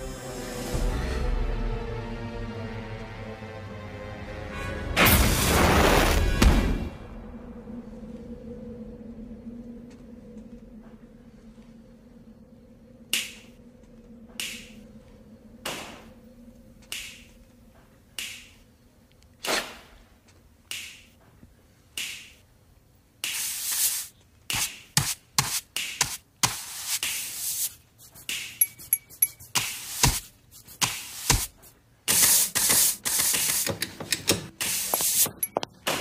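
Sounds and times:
finger snaps: 13.1 - 13.6, 14.4 - 14.8, 16.8 - 17.4, 18.2 - 18.6, 20.7 - 21.1, 22.0 - 22.4.

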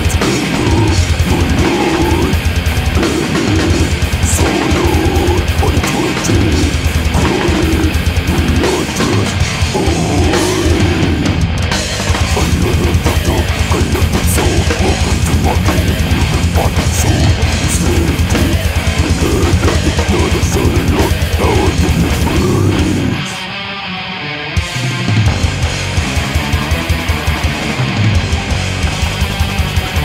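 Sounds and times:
fast bass drum beats: 0.0 - 23.2
distorted electric guitars: 0.0 - 30.0.

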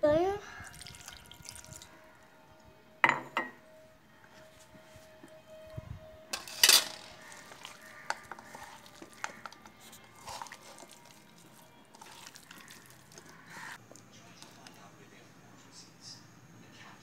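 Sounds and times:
hand squelching food in paste: 0.5 - 1.8, 7.2 - 13.8.

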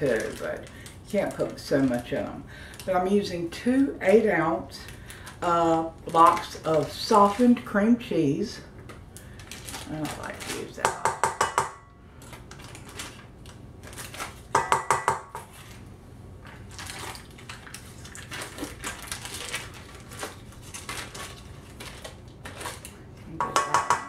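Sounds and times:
foil wrapper crinkling: 0.0 - 3.0, 4.7 - 7.7, 9.2 - 10.8, 12.2 - 14.5, 16.4 - 23.0
metal mixer bowl clinking: 23.4 - 24.0.

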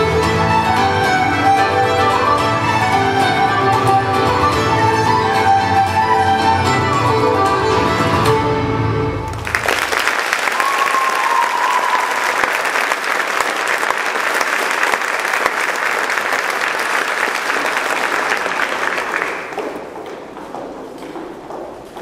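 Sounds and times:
music: 0.0 - 9.6
audience applauding: 9.3 - 20.4.

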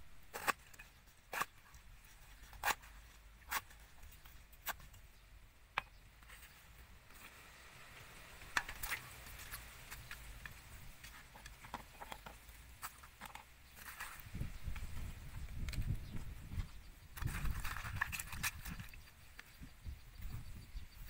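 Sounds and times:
cabbage leaves rustling: 6.2 - 11.6, 12.4 - 19.6.

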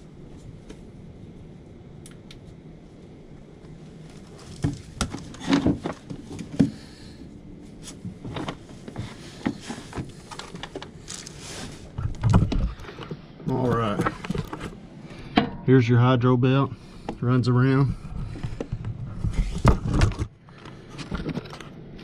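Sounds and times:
knocks scrapes and rustling: 4.1 - 7.0, 7.7 - 15.7, 17.8 - 21.7.

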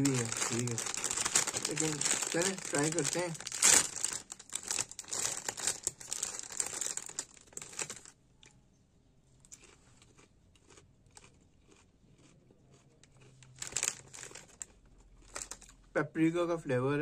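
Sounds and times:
foil crisp bag crinkling: 0.0 - 8.1, 13.4 - 15.7
crisp being chewed: 0.0 - 8.6, 9.4 - 15.8.

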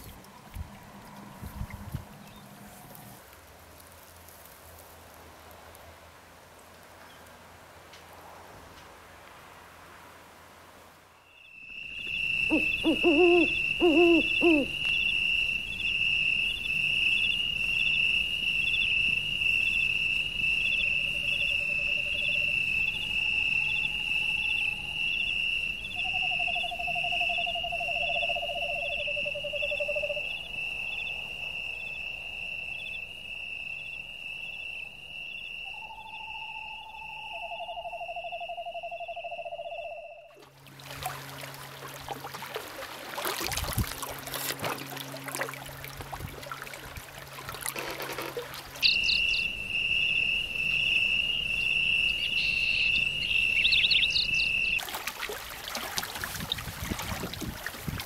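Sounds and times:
high whistling tone: 11.2 - 40.3, 48.8 - 54.8.

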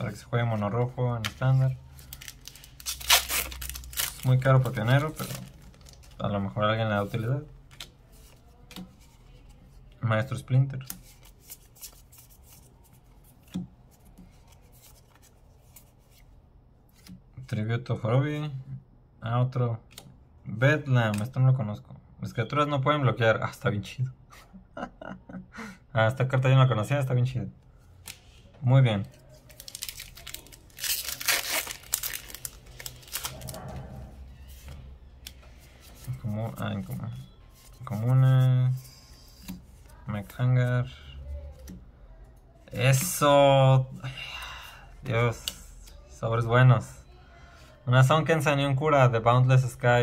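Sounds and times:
foil wrapper tearing and crinkling: 2.0 - 6.2, 29.5 - 33.5.

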